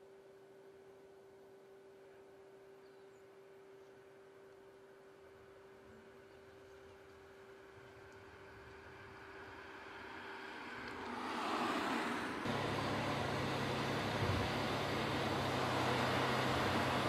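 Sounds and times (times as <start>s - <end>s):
low engine hum: 5.5s - 17.0s
road noise: 7.5s - 17.0s
car driving up: 10.3s - 17.0s.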